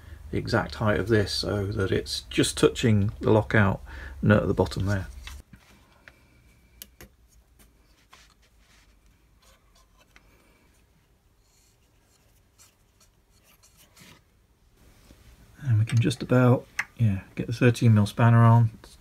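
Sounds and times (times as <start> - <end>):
faint rubbing of spindle shaft: 7.6 - 14.3.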